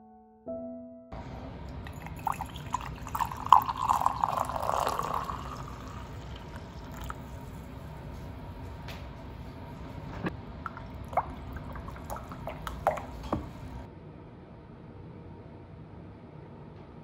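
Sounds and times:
drips: 1.7 - 7.9, 10.2 - 13.9
coffee pouring into a mug: 1.7 - 8.8, 10.6 - 13.9.

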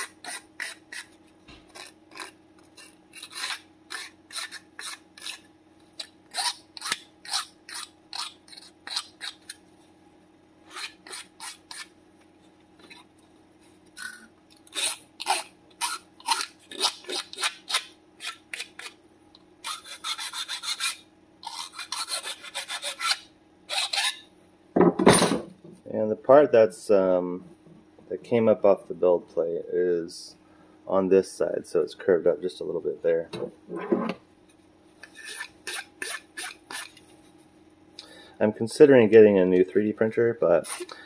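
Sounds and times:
metal file rasping on plastic: 0.0 - 9.6, 10.7 - 11.9, 14.0 - 19.0, 19.6 - 24.2, 35.0 - 37.0, 40.6 - 41.0.

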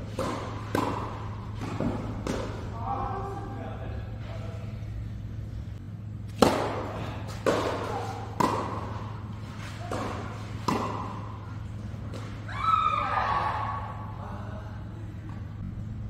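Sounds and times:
tennis ball hits: 0.0 - 2.7, 6.3 - 12.4.

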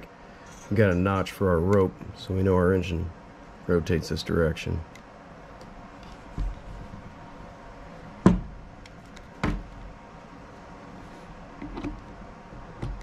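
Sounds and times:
tools knocking on wooden workbench: 8.2 - 8.5.

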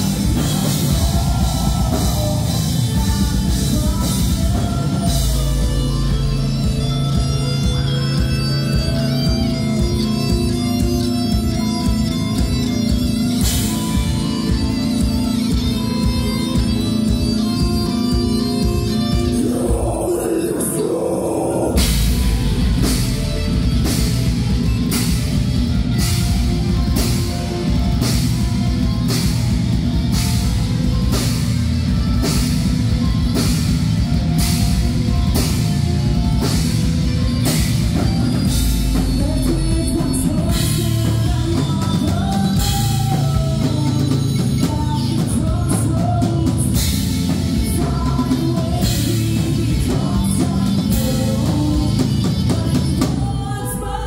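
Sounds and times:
person singing: 0.0 - 23.6, 37.4 - 54.0
heavy metal band playing: 0.0 - 54.0
drum and cymbal hits: 21.6 - 53.4.

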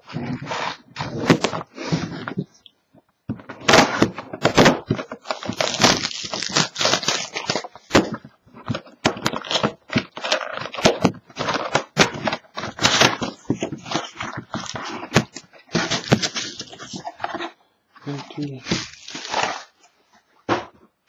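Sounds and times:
plastic wrap crinkling: 4.4 - 17.5, 18.1 - 20.0.

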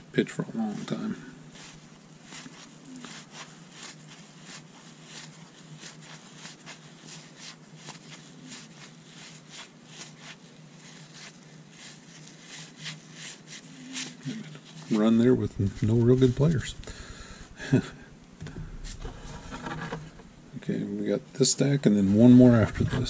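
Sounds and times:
faint low hum: 0.0 - 23.0
cards flipping and sliding: 18.4 - 20.3.

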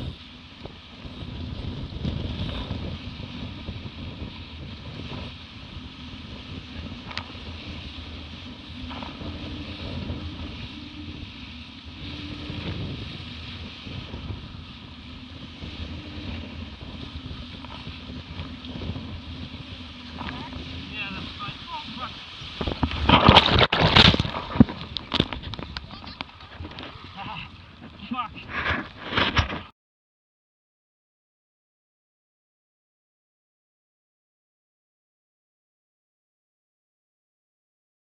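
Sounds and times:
water rushing past hulls: 0.0 - 29.6
wind buffeting microphone: 0.0 - 29.7.

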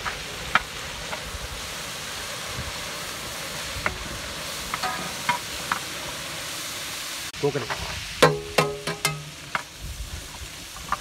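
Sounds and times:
sizzling hiss: 0.0 - 11.0
spatula clinking against pan: 8.2 - 9.4.

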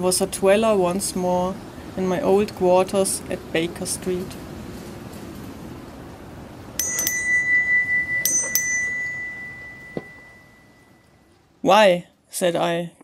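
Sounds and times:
small doorbell ringing: 6.8 - 11.3.

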